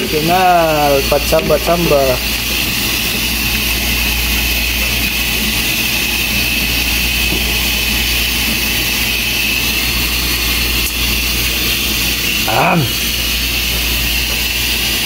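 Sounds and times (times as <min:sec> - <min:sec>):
kitchen exhaust fan drone: 0:00.0 - 0:15.0.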